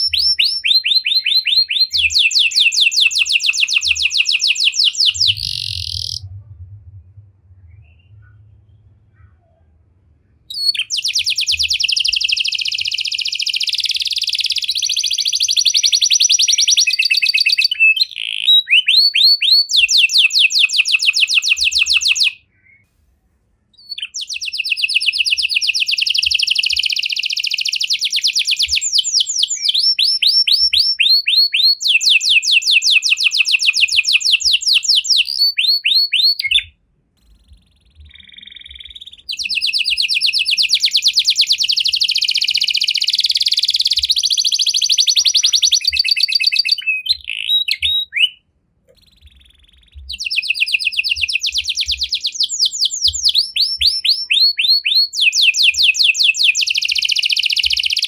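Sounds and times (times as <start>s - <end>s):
canary singing trills: 0.0s - 6.3s, 10.2s - 22.8s, 23.8s - 58.0s.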